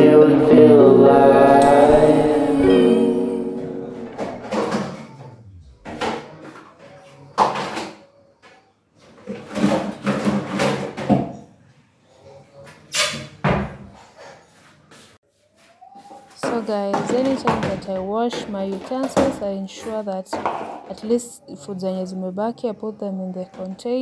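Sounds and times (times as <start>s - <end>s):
background music: 0.0s - 5.8s
plastic kitchenware clattering: 9.0s - 11.5s, 16.3s - 21.3s.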